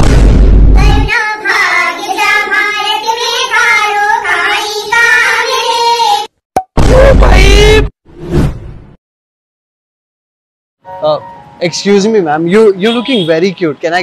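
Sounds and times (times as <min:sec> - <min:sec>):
group of women singing: 0:01.1 - 0:06.3.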